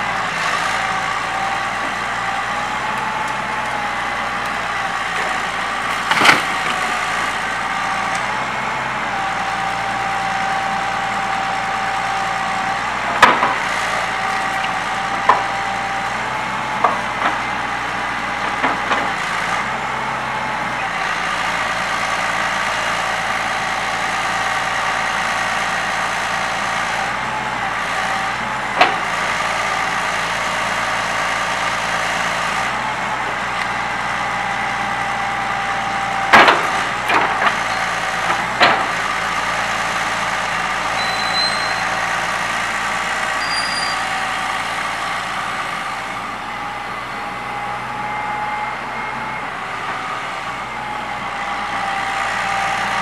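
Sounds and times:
excavator diesel engine running: 0.0s - 53.0s
hydraulic whine: 34.4s - 53.0s.

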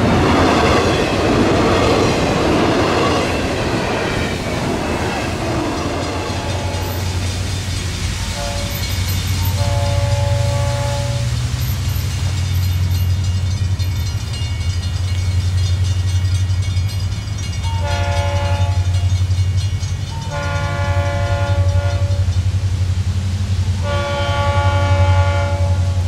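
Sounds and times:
steady low rumble: 0.0s - 11.7s
locomotive air horn blasts: 6.2s - 7.2s, 8.2s - 11.6s, 17.8s - 19.0s, 20.2s - 22.3s, 23.8s - 26.0s.

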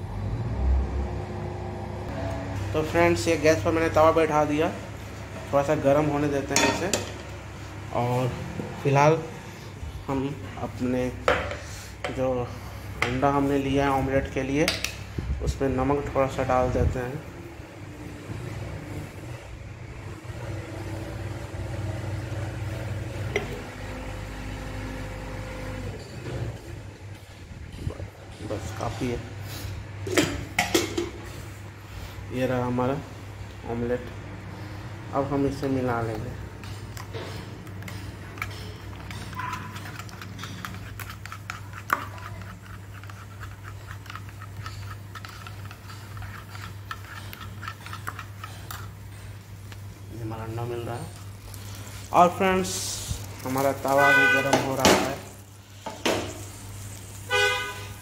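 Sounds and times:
low mechanical hum: 0.0s - 58.0s
spoon beating eggs in plastic bowl: 35.6s - 51.2s.

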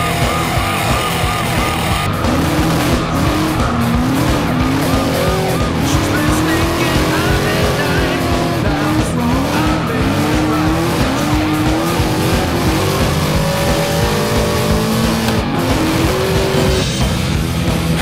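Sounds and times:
tyres squealing: 0.0s - 16.8s
background music: 0.0s - 18.0s
car engine revving: 0.0s - 18.0s.

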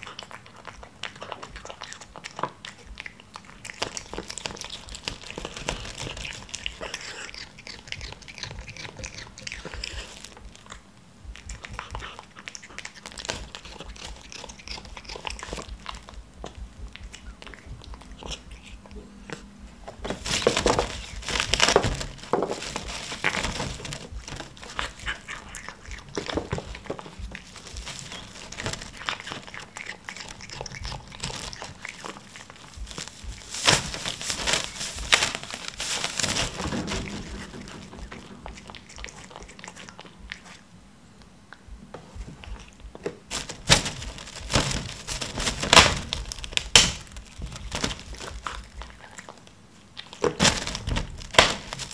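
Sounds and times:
plastic wrap crinkling: 3.6s - 10.7s, 19.9s - 40.0s, 43.0s - 49.4s, 50.1s - 51.9s.

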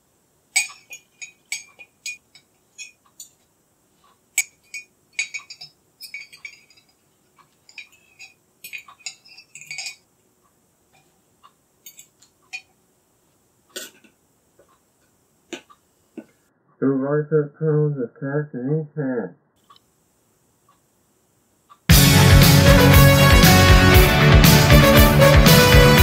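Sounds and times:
cutlery clinking on metal jug: 0.5s - 3.4s, 4.4s - 7.0s, 7.7s - 10.0s, 11.8s - 12.8s.

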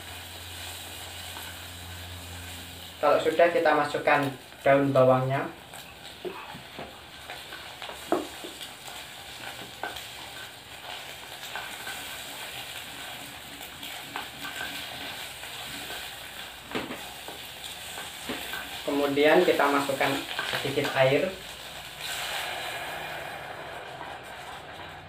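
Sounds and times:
egg sizzling in hot oil: 0.0s - 25.0s.

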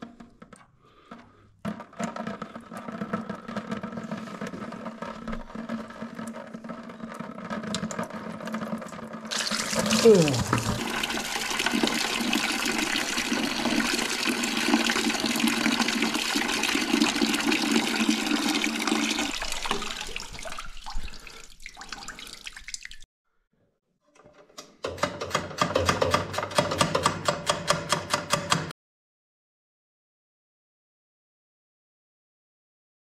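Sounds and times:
liquid pouring into bucket: 2.3s - 23.1s.

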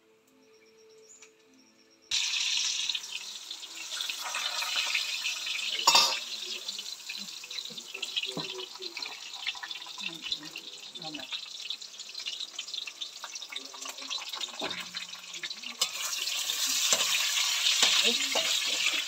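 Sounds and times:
food sizzling in hot oil: 2.1s - 19.0s
utensils clinking: 5.8s - 6.3s.

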